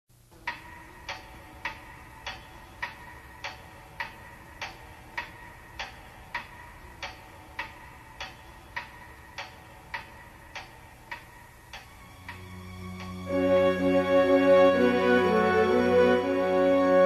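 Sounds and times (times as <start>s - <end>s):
clock ticking: 0.4s - 13.3s.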